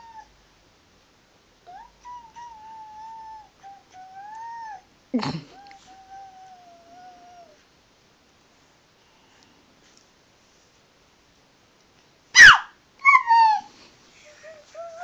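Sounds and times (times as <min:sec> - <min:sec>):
young child squealing: 0:12.4 - 0:13.7.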